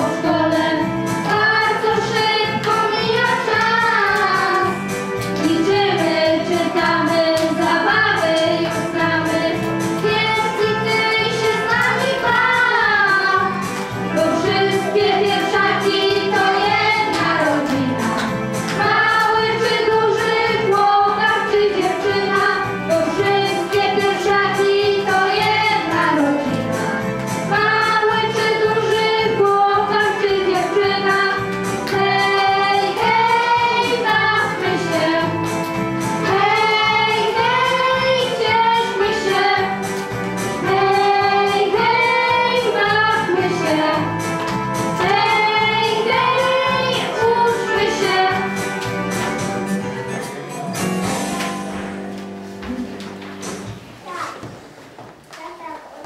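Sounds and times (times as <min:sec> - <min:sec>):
girls singing into a microphone: 0:00.0 - 0:17.9, 0:18.8 - 0:26.6, 0:27.5 - 0:35.4, 0:36.2 - 0:39.9, 0:40.6 - 0:44.1, 0:45.0 - 0:48.6.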